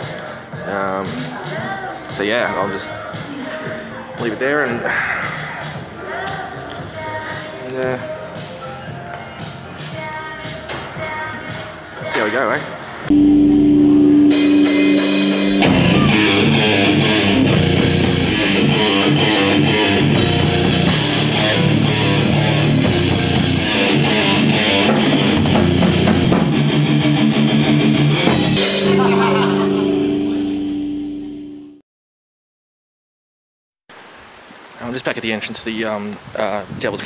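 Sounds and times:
drum kit: 13.1 - 31.5
electric guitar: 13.1 - 31.8.

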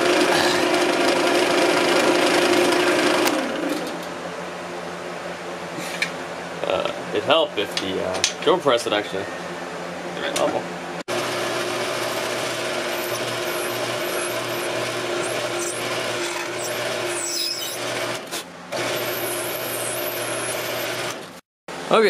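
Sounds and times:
drill press motor hum: 0.0 - 4.1, 11.1 - 21.4
drill bit squealing in metal: 11.8 - 18.2, 18.8 - 21.2.

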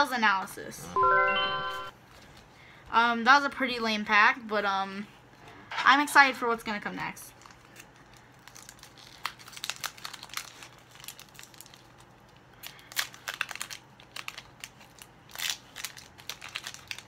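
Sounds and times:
foil wrapper crinkling: 7.2 - 17.0.

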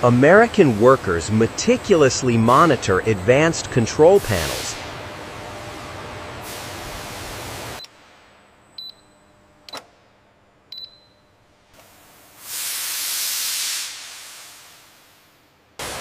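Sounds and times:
steam hissing: 0.0 - 5.0, 6.4 - 7.8, 12.4 - 16.0
steam venting from valve: 4.1 - 4.9, 12.4 - 15.2.

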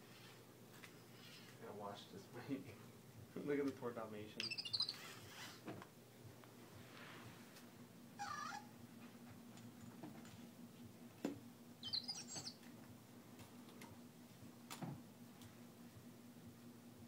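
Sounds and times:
faint steady hum: 0.0 - 17.0
toy chirping and twittering: 4.4 - 5.1, 11.8 - 12.6.

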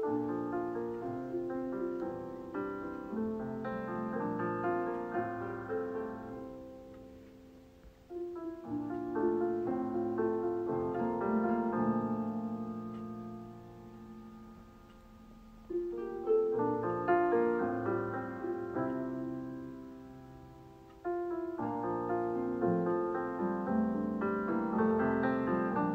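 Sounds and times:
gentle piano music: 0.0 - 25.9.

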